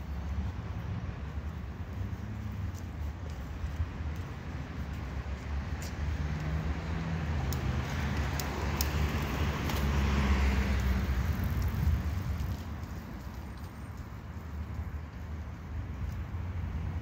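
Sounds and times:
road traffic rumble: 0.0 - 17.0
vehicle passing: 4.4 - 14.6.

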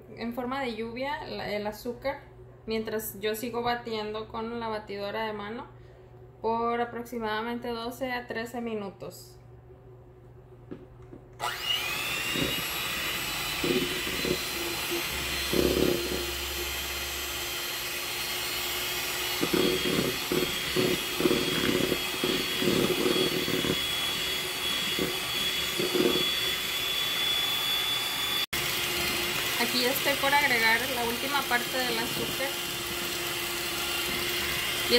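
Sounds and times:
electric hand mixer whining: 11.4 - 34.9.

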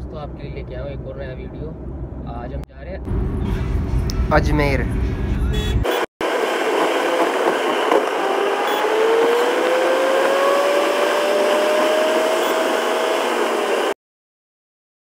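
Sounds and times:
car road and wind noise: 0.0 - 14.0
faint rising whine: 6.2 - 14.0.

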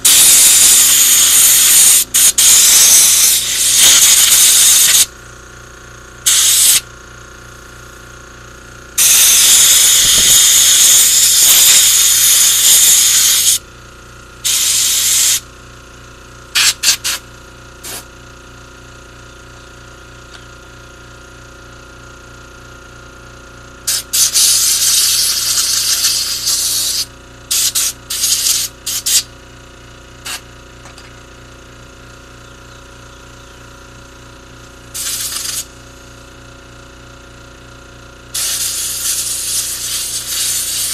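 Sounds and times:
pressurised spray hissing: 0.0 - 5.1, 6.3 - 6.8, 9.0 - 13.6, 35.0 - 35.7, 38.4 - 40.9.

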